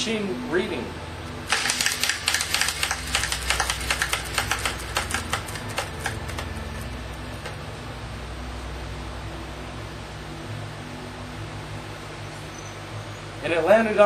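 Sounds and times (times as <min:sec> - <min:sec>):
prize wheel clicking: 0:01.5 - 0:07.6.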